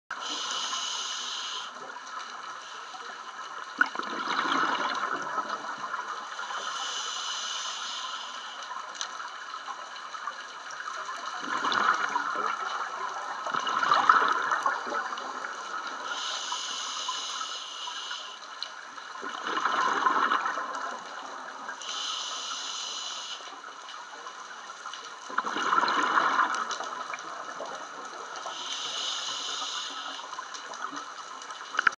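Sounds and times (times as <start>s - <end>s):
regulator inhalation hiss: 0.2s - 1.8s, 6.3s - 8.8s, 16.0s - 18.5s, 21.8s - 23.6s, 28.5s - 30.4s
exhaled bubbles gurgling: 3.6s - 8.0s, 9.9s - 17.5s, 19.0s - 23.0s, 24.6s - 31.2s.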